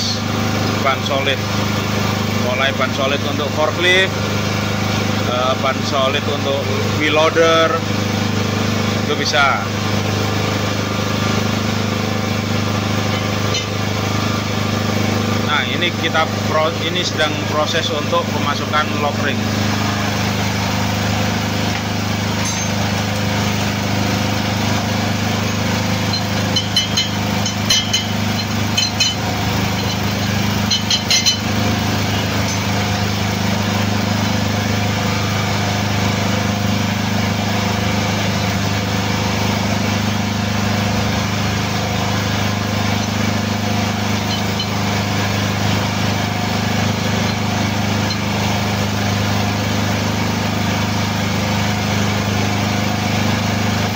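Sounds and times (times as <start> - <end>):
hydraulic power unit humming: 0.0 - 53.9.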